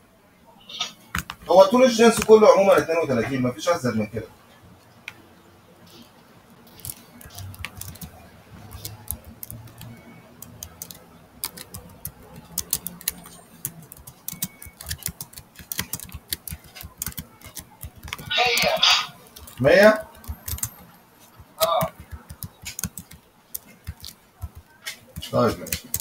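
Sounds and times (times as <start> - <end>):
computer keyboard key clicks: 6.7 - 26.0.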